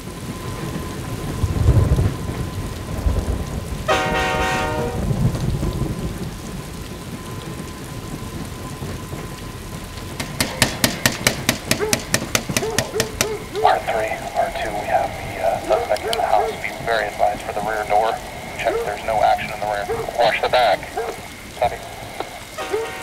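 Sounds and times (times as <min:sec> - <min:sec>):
deep noisy rumble: 0:00.0 - 0:22.7
held horn-like tone: 0:03.9 - 0:05.1, 0:22.3 - 0:23.0
rapid even ticks: 0:10.0 - 0:22.9.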